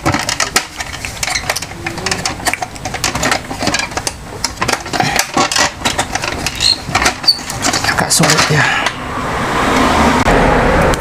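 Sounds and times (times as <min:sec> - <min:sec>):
plastic printer parts clicking: 0:00.0 - 0:08.6.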